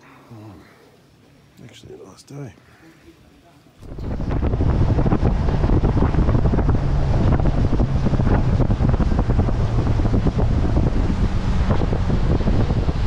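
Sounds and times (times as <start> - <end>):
low steady hum: 0.0 - 13.0
wind buffeting microphone: 3.8 - 13.0.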